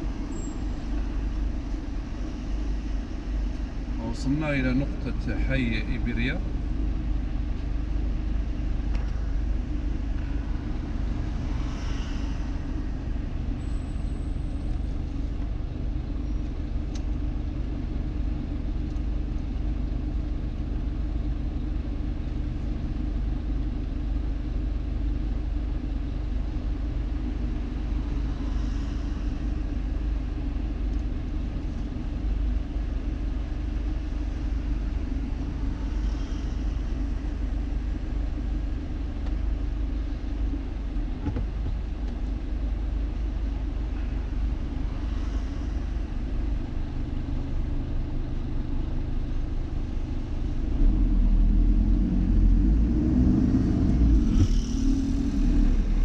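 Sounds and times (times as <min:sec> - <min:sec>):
faint passing traffic: 0:00.0 - 0:16.2, 0:26.9 - 0:41.0, 0:42.4 - 0:56.0
car engine idling: 0:00.0 - 0:56.0.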